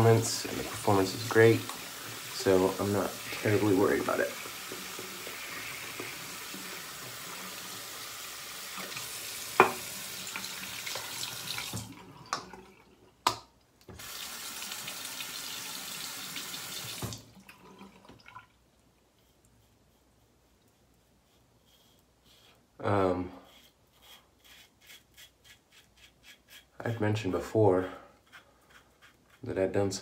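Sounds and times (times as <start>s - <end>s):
tap running into sink: 8.8s - 12.6s.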